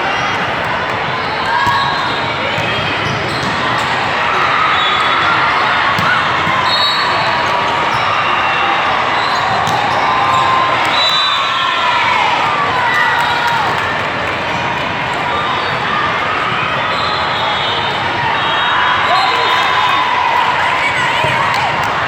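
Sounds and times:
volleyballs bouncing and struck: 5.9 - 6.7, 9.5 - 10.8.

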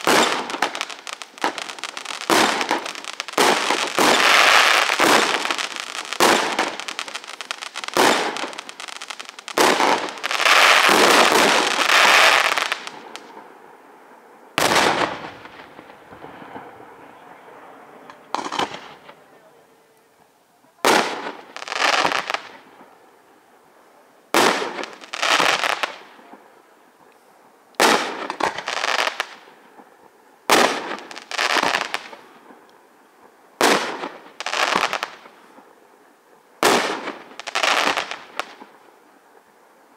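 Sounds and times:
firework shells bursting: 0.0 - 13.3
firework crackle: 0.0 - 13.6, 14.4 - 19.8, 20.7 - 27.0, 27.8 - 39.9.

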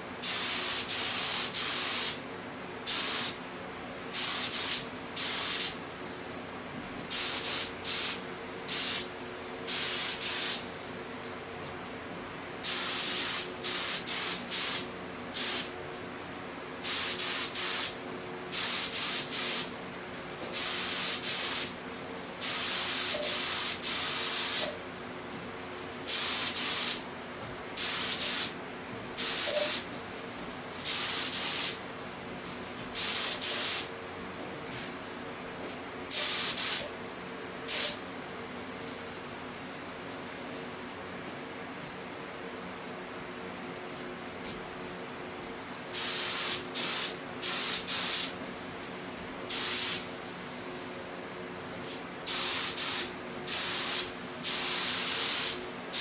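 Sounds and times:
paint spray gun hissing: 0.2 - 2.3, 2.9 - 3.4, 4.0 - 6.1, 7.1 - 9.1, 9.7 - 10.9, 12.6 - 15.7, 16.8 - 19.8, 20.5 - 21.8, 22.4 - 24.8, 26.1 - 27.1, 27.8 - 28.6, 29.2 - 29.9, 30.8 - 31.8, 32.4 - 34.4, 36.1 - 36.9, 37.7 - 38.0, 45.9 - 48.4, 49.5 - 50.1, 50.8 - 56.0.

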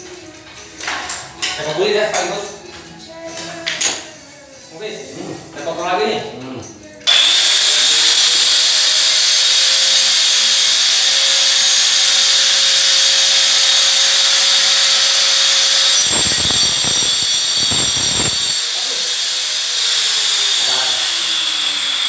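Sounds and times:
angle grinder cutting into wall: 7.1 - 22.0.

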